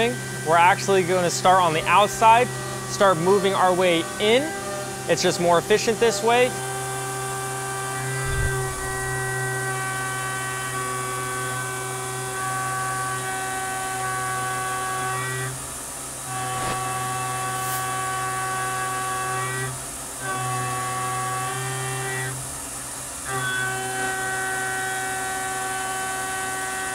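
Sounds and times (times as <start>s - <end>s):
milling spindle whine: 7.9s - 10.8s.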